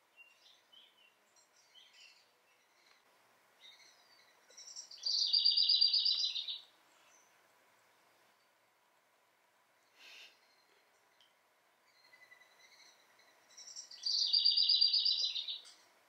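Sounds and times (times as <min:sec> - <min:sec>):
small birds chirping: 0:00.0 - 0:08.9, 0:09.5 - 0:16.0
rapid bird trill: 0:04.8 - 0:06.6, 0:12.0 - 0:15.6.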